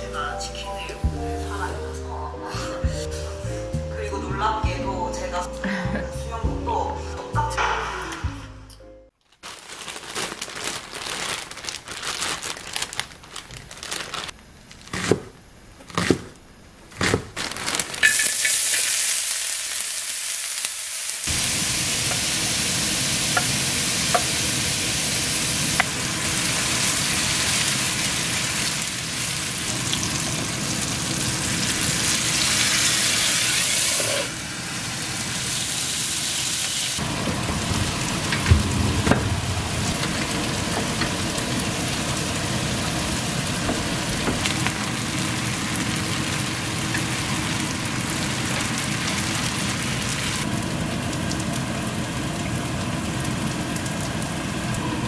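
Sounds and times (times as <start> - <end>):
meat sizzling on a griddle: 18.0 - 38.2
sharp knocks: 38.4 - 41.1.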